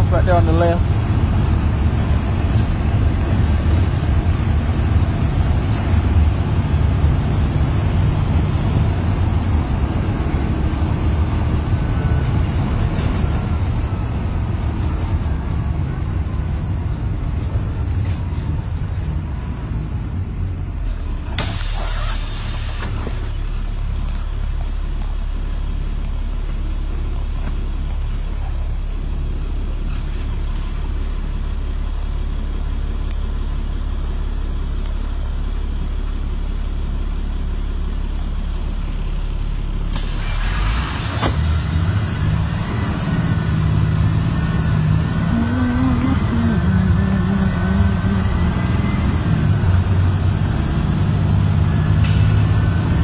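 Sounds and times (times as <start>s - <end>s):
bus diesel engine running: 0.0s - 53.0s
air brakes hissing: 21.4s - 23.3s, 39.9s - 45.0s, 52.0s - 52.6s.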